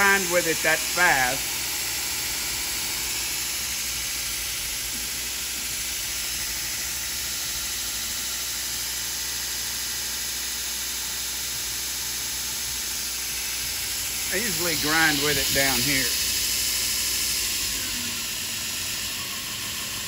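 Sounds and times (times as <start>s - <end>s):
electric motor humming: 12.1s - 20.0s
abrasive belt hissing: 14.0s - 16.4s.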